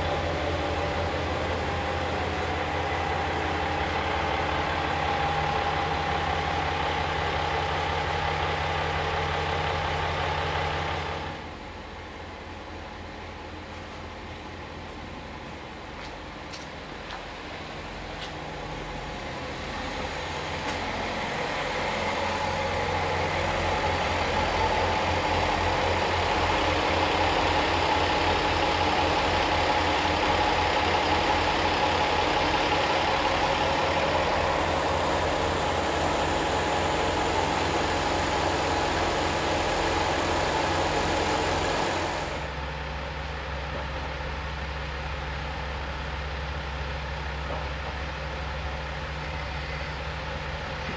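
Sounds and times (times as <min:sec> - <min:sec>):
diesel railcar engine rumbling: 0:00.0 - 0:50.9.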